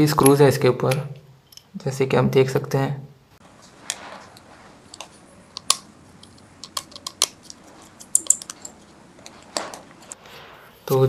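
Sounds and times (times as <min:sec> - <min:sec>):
screwdriver clicks and metallic taps: 0:05.5 - 0:08.8.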